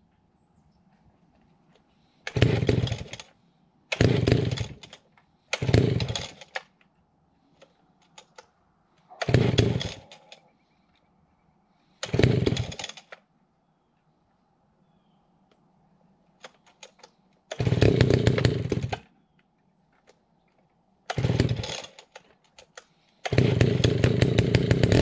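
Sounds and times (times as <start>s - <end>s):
chainsaw being pull-started: 2.2s - 6.8s, 7.5s - 8.5s, 9.2s - 10.4s, 12.0s - 13.2s, 16.4s - 19.1s, 21.1s - 25.0s.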